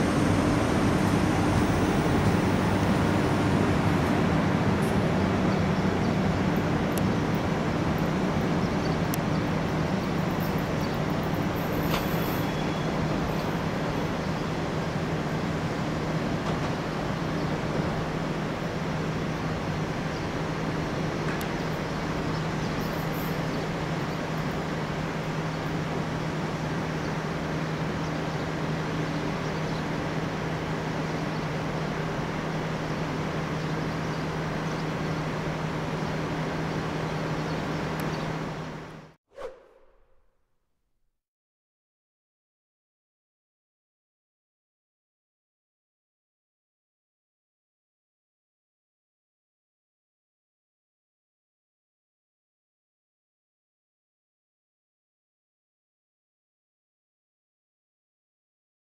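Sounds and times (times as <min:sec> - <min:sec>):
steady low hum: 0:00.0 - 0:11.7
train wheels rumbling on rails: 0:00.0 - 0:18.9.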